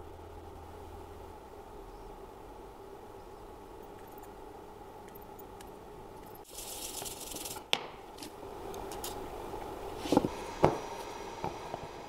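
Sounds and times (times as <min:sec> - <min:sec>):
aerosol can spraying: 0:06.5 - 0:07.7.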